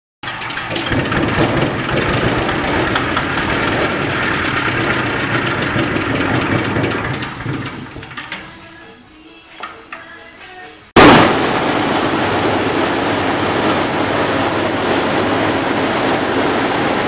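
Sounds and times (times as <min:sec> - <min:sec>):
diesel engine knocking: 0:00.2 - 0:08.6.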